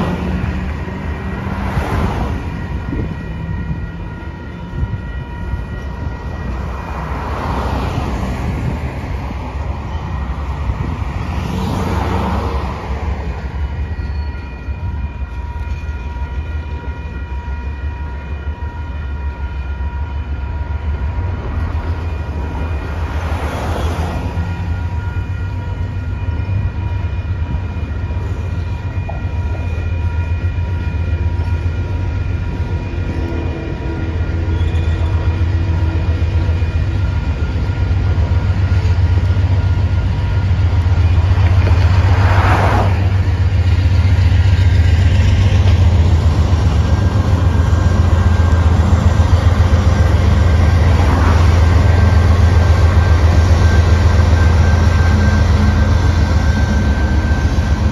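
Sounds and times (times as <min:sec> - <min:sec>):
freight train rumbling past: 0:00.0 - 0:57.9.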